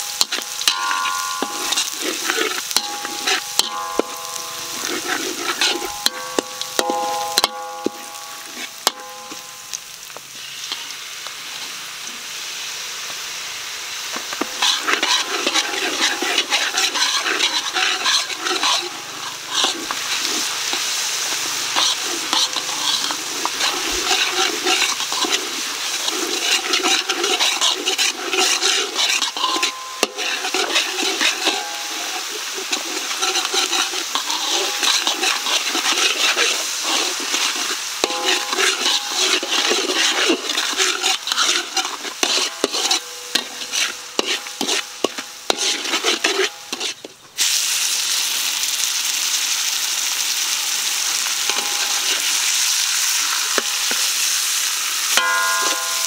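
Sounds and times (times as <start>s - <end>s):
stirring scrape and clatter: 0.0s - 9.6s, 14.2s - 47.2s, 51.4s - 52.5s, 53.3s - 54.1s
meat sizzling in a pan: 0.0s - 56.0s.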